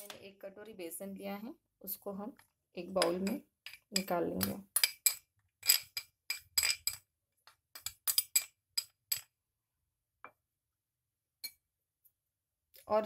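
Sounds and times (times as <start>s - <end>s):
cutlery clinking against glass bowl: 3.0s - 7.0s.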